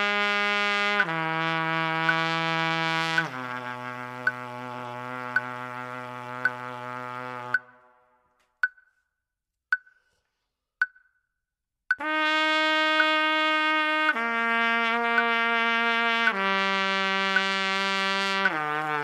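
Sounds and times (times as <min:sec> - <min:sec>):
trumpet long held notes: 0:00.0 - 0:08.2, 0:12.0 - 0:19.0
metronome clicking: 0:04.2 - 0:04.4, 0:05.3 - 0:05.5, 0:08.6 - 0:09.0, 0:09.7 - 0:10.0, 0:10.8 - 0:11.1, 0:17.4 - 0:17.6.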